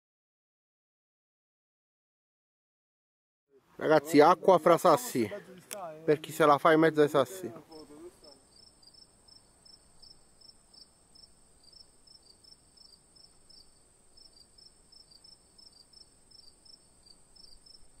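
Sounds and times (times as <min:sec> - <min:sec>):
steady high hiss: 0:03.6 - 0:18.0
insect chirping: 0:07.6 - 0:18.0.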